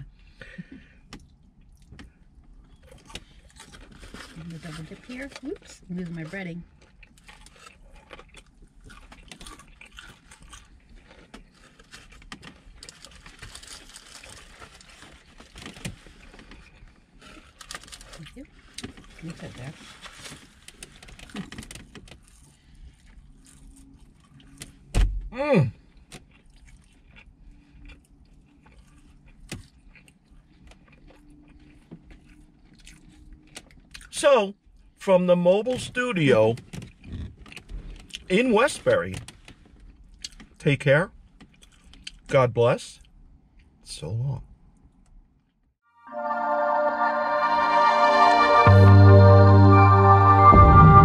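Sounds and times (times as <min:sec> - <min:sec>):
crunchy chewing: 0:06.7 - 0:19.1, 0:20.0 - 0:24.9, 0:26.0 - 0:34.1
paper wrappers crinkling: 0:11.1 - 0:16.6, 0:17.2 - 0:18.3.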